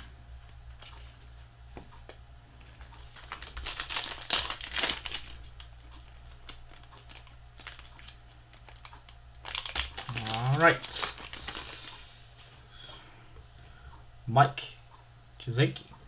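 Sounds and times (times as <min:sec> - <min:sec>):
steady low hum: 0:00.0 - 0:16.0
foil wrapper crinkling and tearing: 0:02.6 - 0:12.0.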